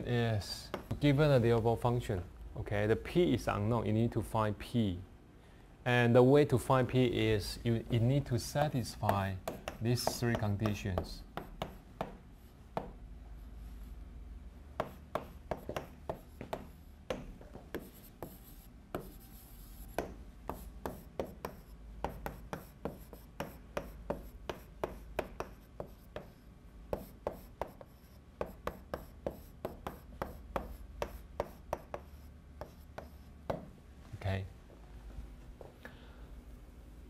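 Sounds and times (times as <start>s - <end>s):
steady low hum: 0.0s - 37.0s
chalk tapping and scraping on board: 0.6s - 1.0s, 9.0s - 13.0s, 14.8s - 33.7s.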